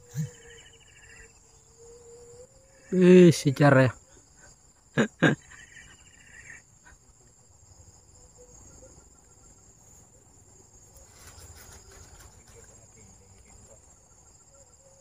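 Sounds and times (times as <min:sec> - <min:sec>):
insects trilling: 0:00.0 - 0:15.0.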